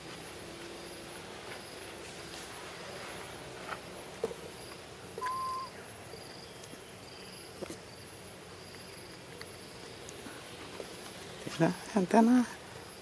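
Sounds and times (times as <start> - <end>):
high insect chirp: 0.0 - 13.0
whistle-like bird call: 5.2 - 5.8.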